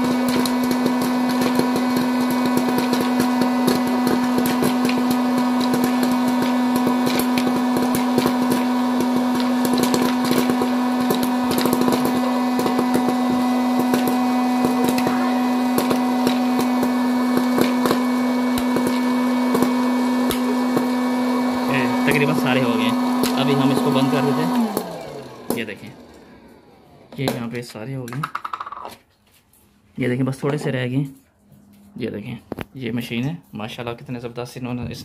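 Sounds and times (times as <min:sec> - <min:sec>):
popcorn kernels popping: 0:00.0 - 0:25.9, 0:27.1 - 0:29.0
fan motor humming: 0:00.0 - 0:27.6.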